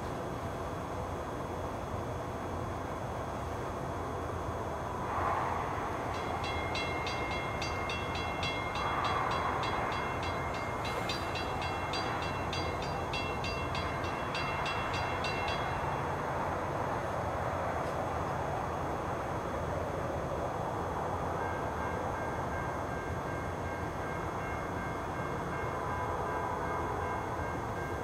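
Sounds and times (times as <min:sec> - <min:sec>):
railroad crossing bell ringing: 0:06.0 - 0:16.9, 0:21.1 - 0:28.0.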